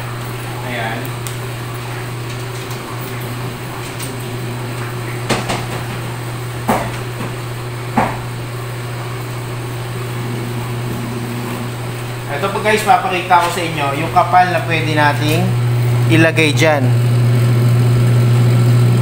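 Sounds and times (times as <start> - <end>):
electric motor humming: 0.0 - 19.0
paper stack knocking on metal table: 5.1 - 8.3.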